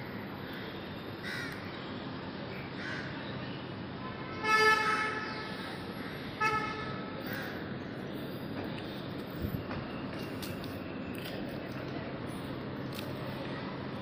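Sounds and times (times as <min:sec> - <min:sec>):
steady background hum: 0:00.0 - 0:14.0
crow cawing: 0:01.2 - 0:01.6, 0:02.8 - 0:03.1.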